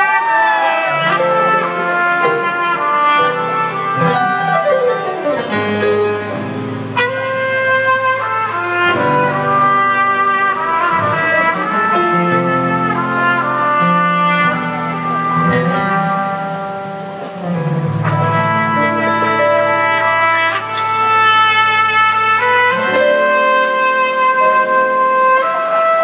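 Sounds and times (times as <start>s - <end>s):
live band playing: 0.0s - 26.0s
trumpet melody: 0.0s - 26.0s.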